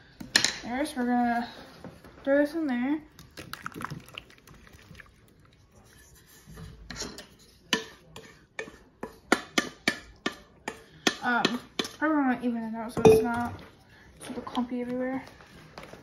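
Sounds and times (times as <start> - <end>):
wet filling scraped from bowl: 3.9 - 9.3
utensil tapping against dish: 7.7 - 12.0.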